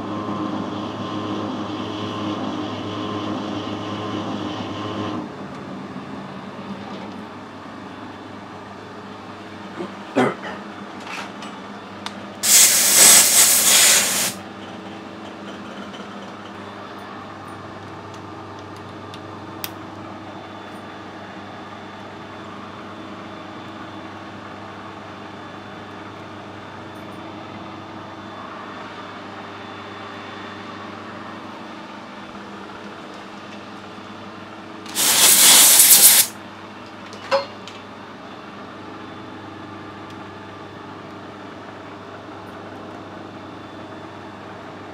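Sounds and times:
loud hiss: 0:12.4 - 0:14.4, 0:34.9 - 0:36.4.

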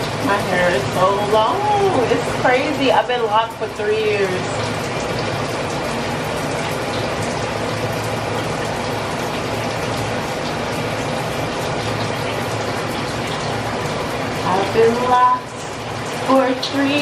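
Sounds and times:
water running: 0:00.0 - 0:17.0.

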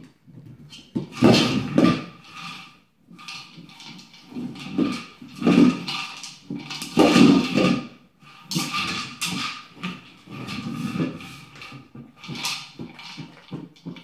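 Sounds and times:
plastic toy clattering on wooden floor: 0:00.7 - 0:02.6, 0:03.2 - 0:14.0.

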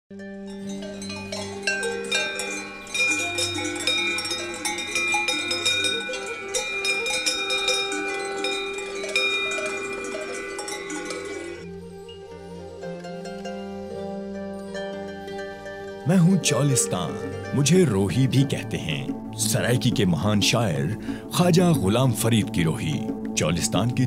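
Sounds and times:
bell-like struck notes: 0:00.3 - 0:11.7.

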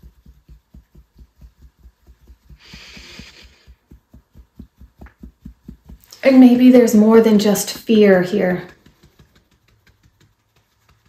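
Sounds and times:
fingertips tapping on body: 0:00.0 - 0:11.0
person breathing: 0:02.5 - 0:03.8.

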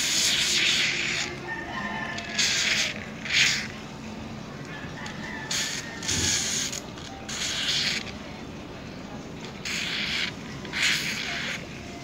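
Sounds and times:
aerosol can spraying: 0:00.0 - 0:01.4, 0:02.2 - 0:03.7, 0:05.5 - 0:08.2, 0:09.6 - 0:11.7.

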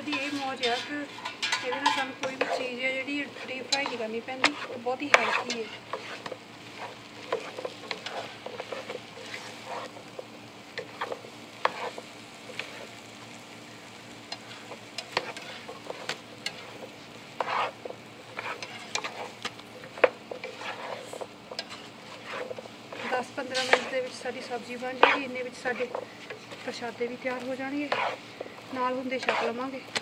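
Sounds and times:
spatula scraping pan: 0:00.0 - 0:13.1, 0:14.2 - 0:30.0
oil sizzling in frying pan: 0:00.0 - 0:30.0.

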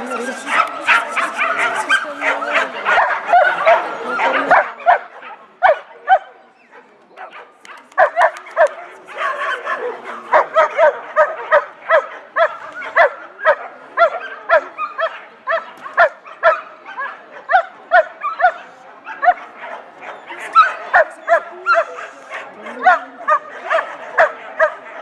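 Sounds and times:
dog barking high-pitched: 0:07.2 - 0:18.6.

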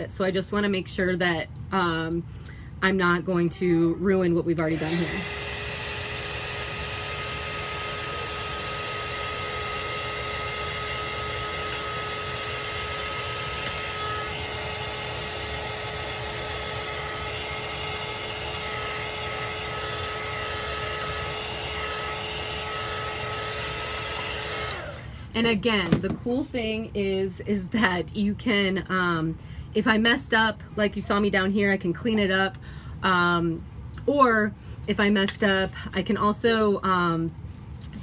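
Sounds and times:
heat tool blowing with whine: 0:04.5 - 0:25.6.

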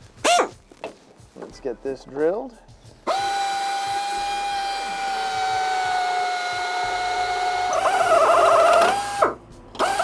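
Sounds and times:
power drill whining into metal: 0:03.1 - 0:10.0.

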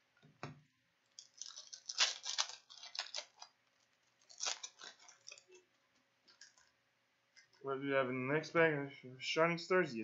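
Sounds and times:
foil wrapper crinkling: 0:01.0 - 0:05.7.

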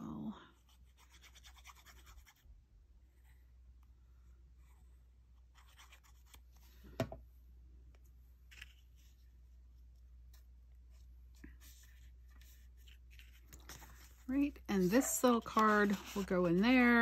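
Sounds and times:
paper cards rustling and scraping: 0:05.4 - 0:06.9, 0:08.4 - 0:17.0.

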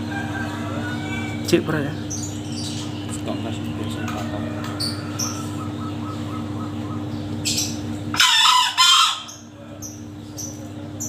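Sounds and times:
rooster crowing: 0:00.0 - 0:01.6, 0:03.8 - 0:06.1, 0:08.1 - 0:09.9
small birds chirping: 0:00.0 - 0:08.3, 0:09.1 - 0:11.0.

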